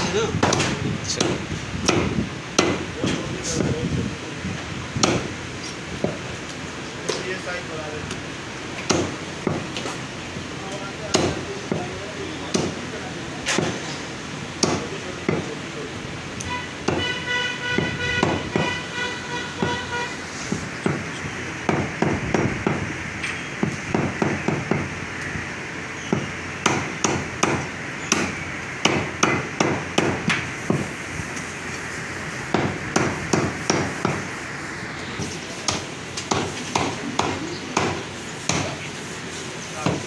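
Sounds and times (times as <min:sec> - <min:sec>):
cleaver chopping on wooden block: 0:00.4 - 0:02.8, 0:05.0 - 0:05.3, 0:08.8 - 0:09.8, 0:11.1 - 0:11.9, 0:12.5 - 0:12.8, 0:13.5 - 0:13.8, 0:14.6 - 0:15.5, 0:16.8 - 0:17.1, 0:21.7 - 0:22.8, 0:23.6 - 0:24.9, 0:26.1 - 0:30.9, 0:32.5 - 0:34.2, 0:35.7 - 0:38.8.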